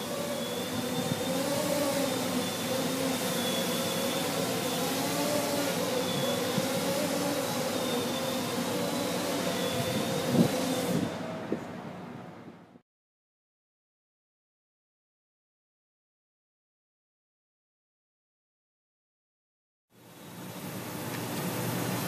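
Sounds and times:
quadcopter motors humming: 0:00.0 - 0:11.7.

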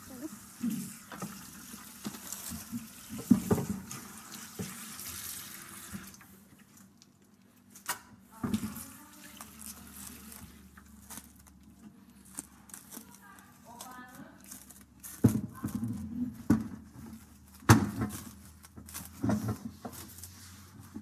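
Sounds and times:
tap running into a sink: 0:00.6 - 0:06.3.

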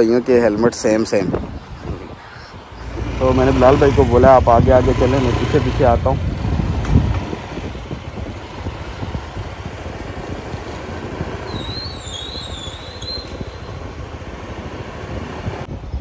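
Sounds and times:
motorcycle engine and road rumble: 0:02.7 - 0:16.0
high-pitched wavering squeal: 0:11.4 - 0:14.1.

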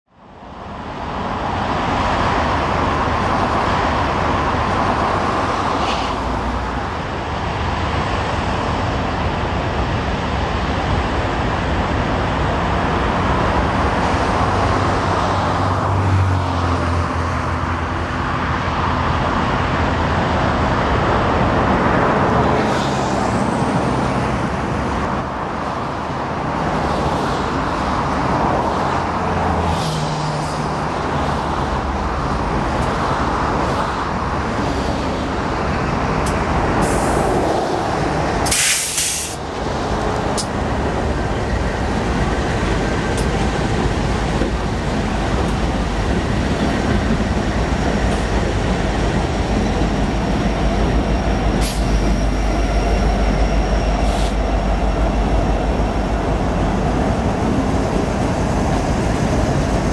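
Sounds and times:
diesel locomotive engine drone: 0:00.1 - 0:59.9
train wheels rolling on rails: 0:00.5 - 0:59.9
high-pitched wheel squeals: 0:50.2 - 0:56.2.

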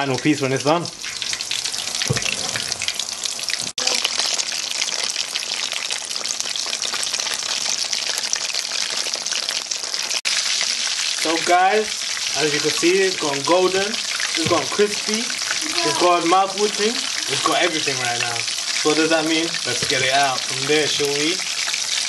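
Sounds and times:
chicken frying in hot oil: 0:00.0 - 0:22.0.

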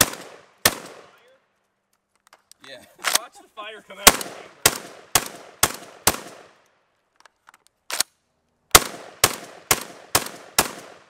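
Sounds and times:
shotgun shots: 0:00.0 - 0:01.2, 0:04.0 - 0:06.6, 0:08.7 - 0:11.0.

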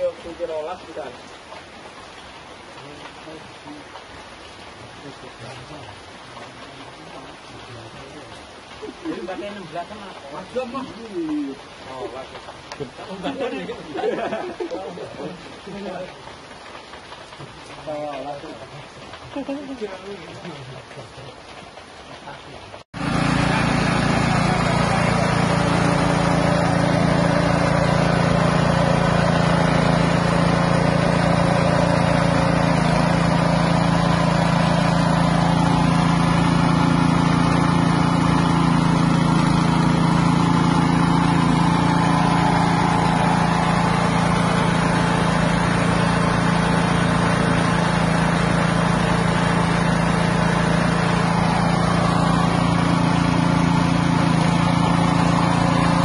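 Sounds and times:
pellet extruder machine running: 0:23.0 - 0:56.0.

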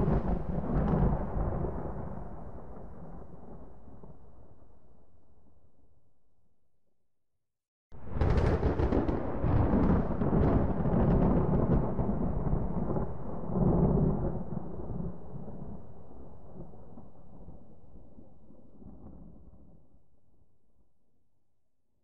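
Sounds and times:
thunder rumbling with crackles: 0:00.0 - 0:04.7, 0:08.0 - 0:19.8.

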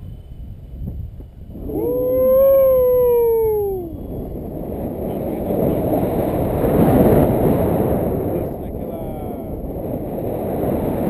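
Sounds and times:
wind on microphone: 0:00.0 - 0:11.0
man's whooping yell: 0:01.7 - 0:04.0.

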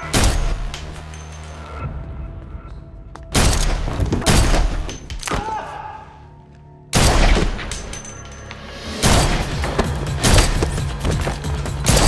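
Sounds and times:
tense film score: 0:00.0 - 0:12.0
pistol gunshots: 0:07.0 - 0:07.9.

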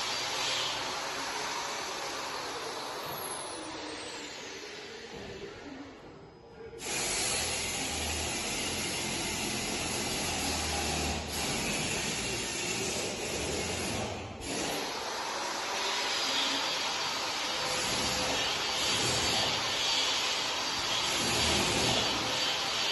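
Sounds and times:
loud steady hiss: 0:06.8 - 0:22.9.

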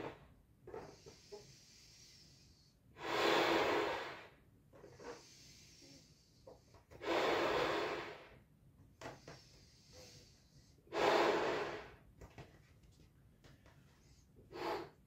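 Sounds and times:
breaths blowing into balloon: 0:03.0 - 0:06.2, 0:06.9 - 0:08.4, 0:09.6 - 0:12.0, 0:14.5 - 0:15.0.

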